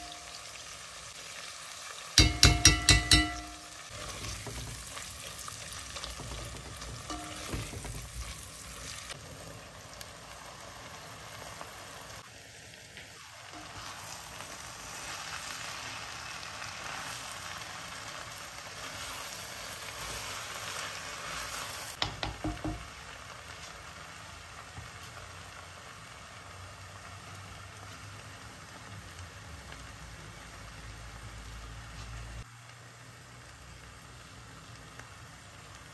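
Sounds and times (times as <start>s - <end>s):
vegetables sizzling in hot oil: 0.0s - 35.9s
spatula knocking against pot: 2.2s - 3.7s, 22.0s - 22.8s
spatula stirring in pot: 2.2s - 9.2s.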